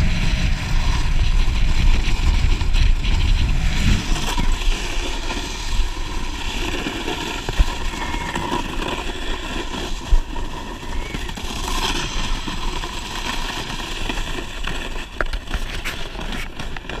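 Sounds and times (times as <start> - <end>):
snowboard scraping over snow: 0.0 - 17.0
wind over microphone: 0.0 - 17.0.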